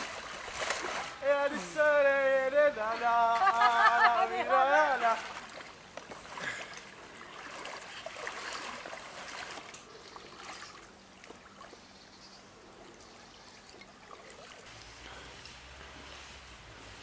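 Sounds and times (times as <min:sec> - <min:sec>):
small splashes and drips: 0:00.0 - 0:01.2, 0:04.9 - 0:12.0, 0:12.6 - 0:16.9
water sloshing and trickling: 0:00.0 - 0:01.8, 0:03.0 - 0:17.0.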